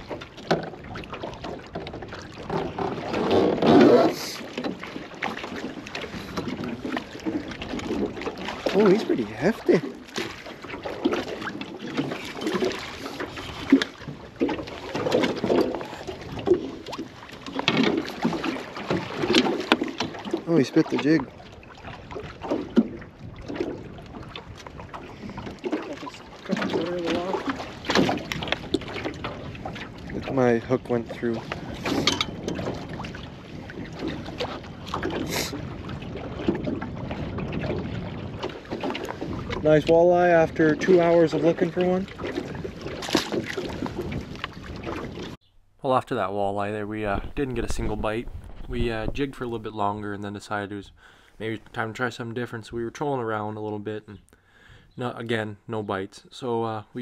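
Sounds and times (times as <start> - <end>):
water splashing against boat hull: 0.0 - 54.2
knocks and rustling of fishing gear: 9.8 - 20.5, 26.5 - 29.8, 31.5 - 33.0, 42.2 - 45.7
wind buffeting microphone: 18.0 - 45.4, 46.0 - 51.7.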